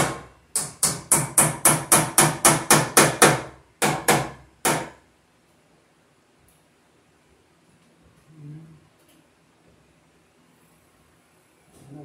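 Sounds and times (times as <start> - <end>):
hammer striking nails into wood: 0.0 - 5.0.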